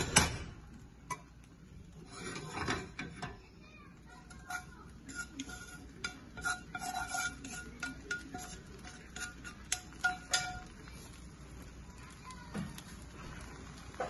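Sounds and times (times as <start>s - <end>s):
metal spatula clinking on pot: 1.1s - 1.4s, 2.1s - 3.4s, 4.1s - 11.2s.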